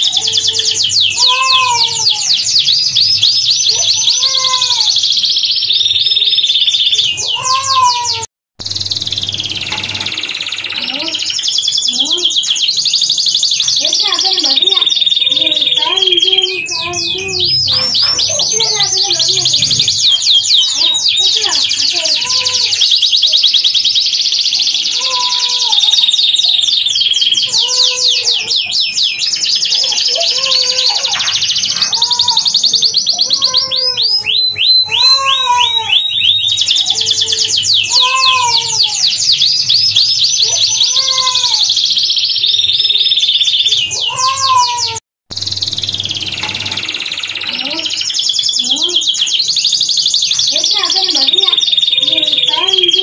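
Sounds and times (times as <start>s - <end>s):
canary singing trills: 0.0s - 53.0s.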